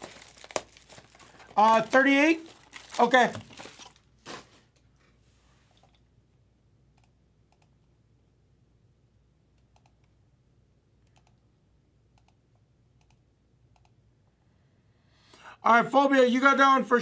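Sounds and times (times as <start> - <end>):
low steady hum: 0.0 - 15.3
computer mouse clicks: 7.0 - 7.8, 9.6 - 10.2, 11.0 - 11.4, 12.1 - 14.0.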